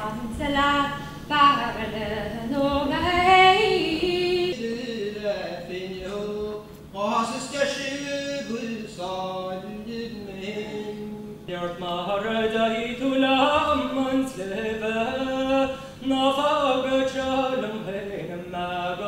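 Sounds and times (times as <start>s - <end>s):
man singing unaccompanied: 4.2s - 19.0s.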